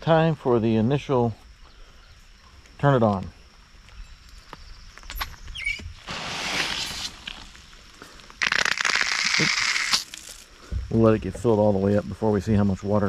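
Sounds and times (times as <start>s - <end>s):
water rushing into garden hose: 6.0s - 7.6s, 8.4s - 10.5s
sputtering hiss of hose: 6.0s - 10.7s.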